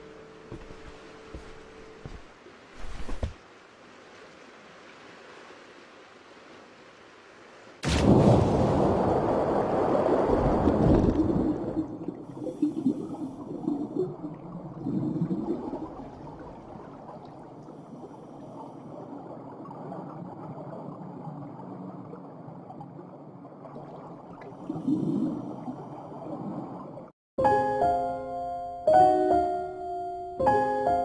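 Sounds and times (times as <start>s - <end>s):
air bubbles gurgling: 10.4s - 17.6s
muffled underwater ambience: 10.7s - 27.1s.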